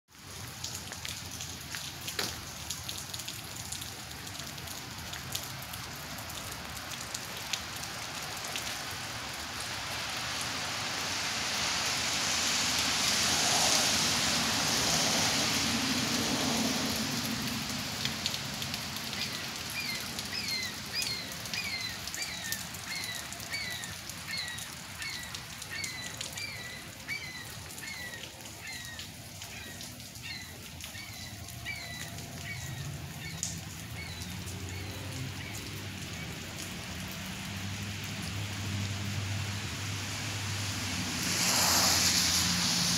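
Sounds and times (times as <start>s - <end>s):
wet snow falling hiss: 8.2s - 24.9s, 38.1s - 42.9s
bird calling: 19.1s - 35.6s
rushing hiss: 40.1s - 42.9s.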